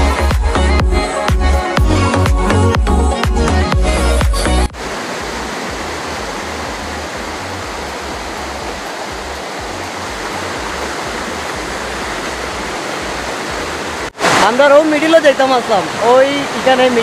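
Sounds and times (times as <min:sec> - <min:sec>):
river rushing over rocks: 0:04.5 - 0:17.0
low rumble of water: 0:04.7 - 0:14.2.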